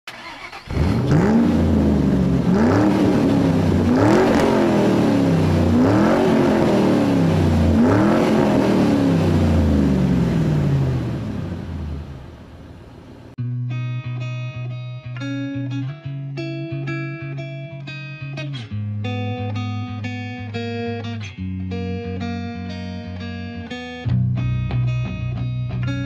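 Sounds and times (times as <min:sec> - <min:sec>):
car engine revving: 0:00.1 - 0:13.4.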